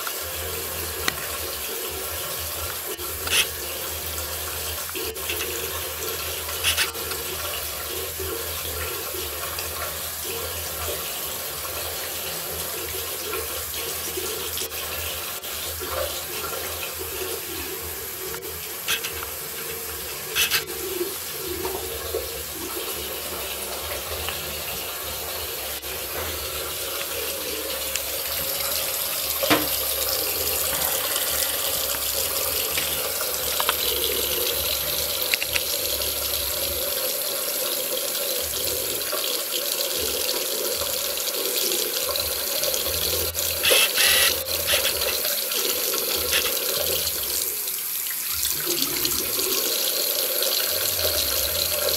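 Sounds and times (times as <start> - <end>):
tap water splashing into basin: 0.9 - 3.6, 18.3 - 36.0.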